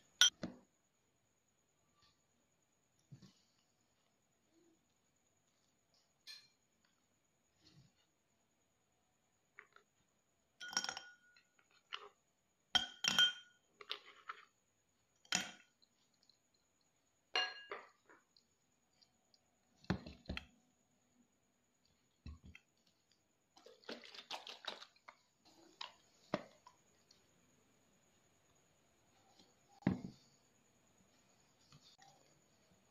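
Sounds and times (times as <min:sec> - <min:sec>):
glass ringing: 0:12.8 - 0:13.6, 0:17.4 - 0:17.8.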